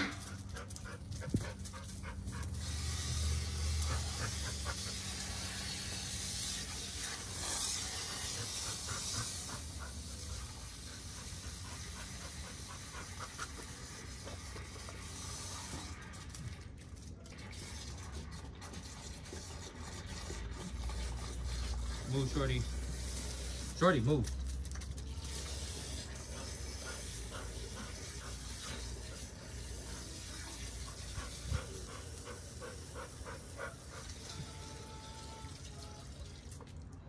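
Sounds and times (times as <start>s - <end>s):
dog panting: 0.0s - 15.0s, 25.6s - 34.6s
garden hose water hissing: 0.0s - 16.7s, 17.4s - 37.0s.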